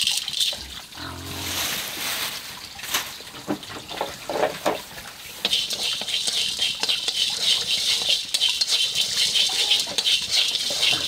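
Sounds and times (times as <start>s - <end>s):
seeds toasting in hot wok: 5.3s - 11.0s.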